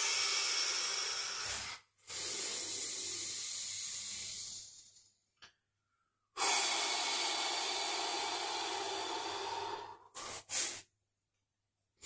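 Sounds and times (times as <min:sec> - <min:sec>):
person breathing out heavily: 0:00.0 - 0:05.0, 0:06.4 - 0:10.8.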